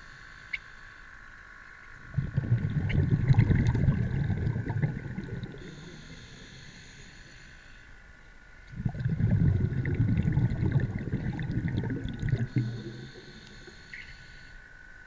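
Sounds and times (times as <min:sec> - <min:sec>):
faint high whine: 0:00.0 - 0:15.0
muffled underwater rumble: 0:02.0 - 0:07.5, 0:08.7 - 0:14.4.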